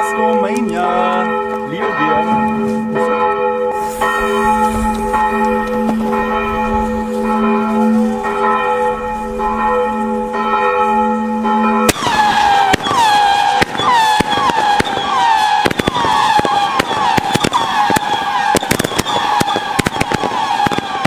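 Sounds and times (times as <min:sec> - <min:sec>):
church bells pealing: 0:00.0 - 0:21.0
firework cracks: 0:11.9 - 0:21.0
firework whistles falling in pitch: 0:11.9 - 0:21.0.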